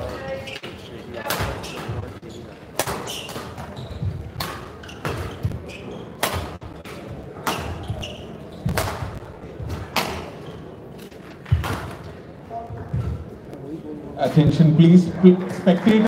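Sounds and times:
rackets hitting shuttlecock: 2.7s - 5.6s, 6.2s - 10.4s, 11.0s - 12.1s.

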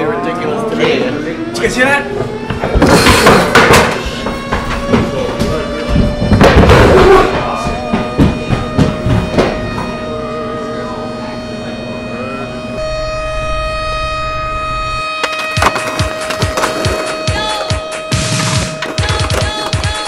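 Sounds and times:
sustained electronic tones: 0.0s - 20.0s
drum-like hits: 2.6s - 9.9s.

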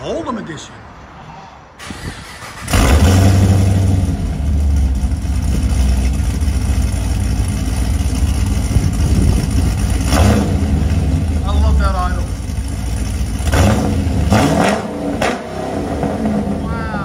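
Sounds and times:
car engine starting and idling: 1.8s - 17.0s.

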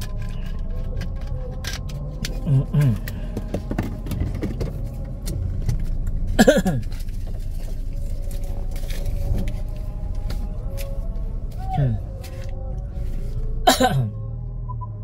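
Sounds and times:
vehicle motor rumbling: 0.0s - 15.0s.

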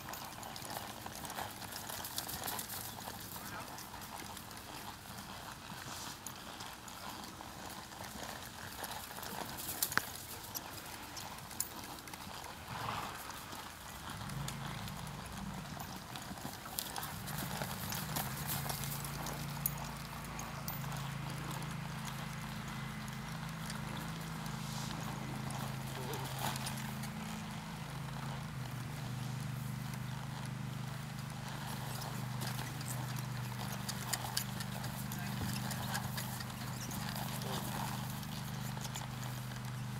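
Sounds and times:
horse hoofbeats on dirt: 0.0s - 39.9s.

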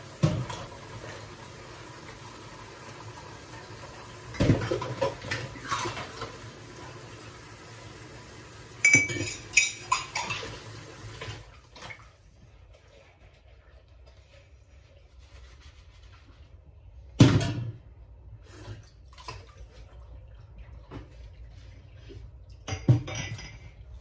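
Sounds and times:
water running from tap: 0.0s - 11.9s
dishes and cutlery clattering: 8.8s - 10.6s, 22.6s - 24.0s.

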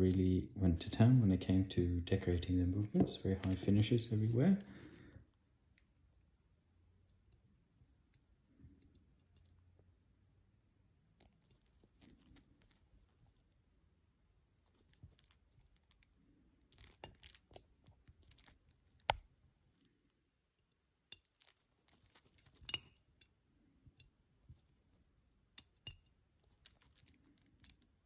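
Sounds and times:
small tools handling noises: 1.4s - 4.8s.

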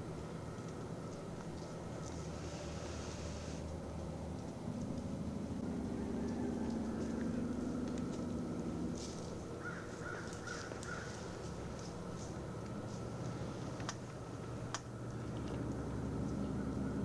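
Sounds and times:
low steady hum: 0.0s - 17.0s
crow cawing: 9.6s - 11.4s.

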